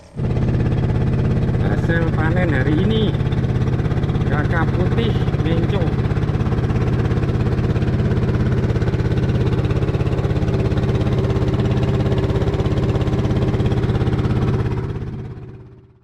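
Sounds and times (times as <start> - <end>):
boat engine running: 0.0 - 16.0.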